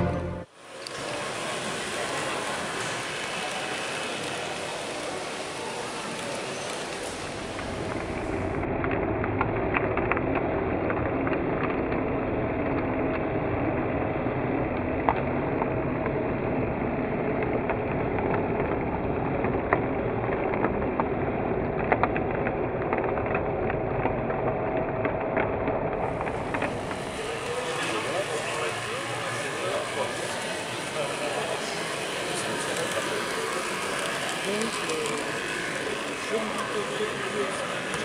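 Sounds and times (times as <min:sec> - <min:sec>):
model locomotive motor hum: 0:00.7 - 0:08.6, 0:26.0 - 0:38.0
wheels clicking on rails: 0:00.8 - 0:16.4, 0:17.0 - 0:38.0.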